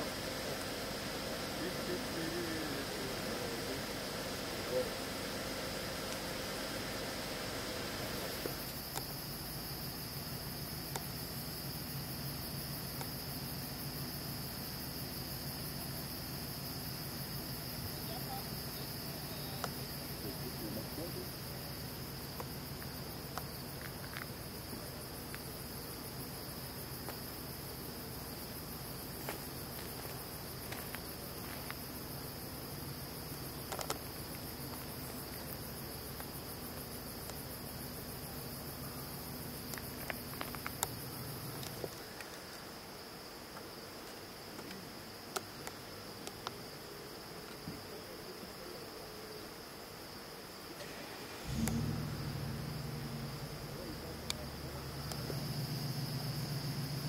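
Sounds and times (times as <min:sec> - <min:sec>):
crickets trilling: 0:00.0 - 0:57.0
low hum: 0:51.4 - 0:57.0.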